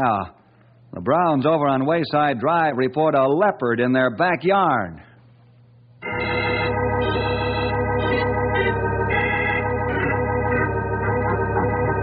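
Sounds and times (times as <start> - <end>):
organ chords: 6.0 - 12.0.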